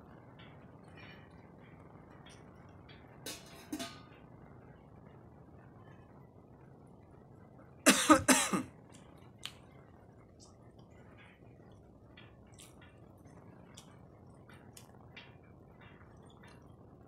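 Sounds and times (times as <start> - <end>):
man coughing: 7.9 - 8.7.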